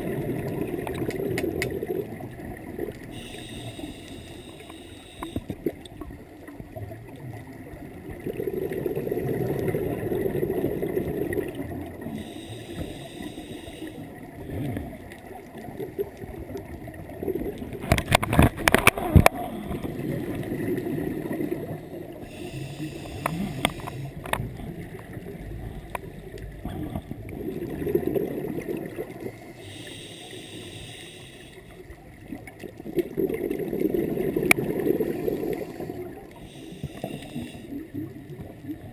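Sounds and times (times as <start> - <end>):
diver breathing through regulator: 3.1 - 5.6, 12.0 - 14.9, 22.2 - 24.8, 29.3 - 31.8, 35.0 - 37.9
bubbling exhale underwater: 8.1 - 13.4, 17.1 - 29.8, 32.3 - 38.9.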